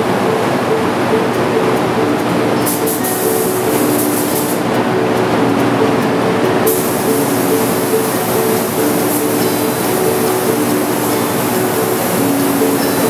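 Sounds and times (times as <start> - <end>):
steady rush of air: 0.0 - 13.0
paint spray gun hissing: 2.6 - 4.7, 6.7 - 13.0.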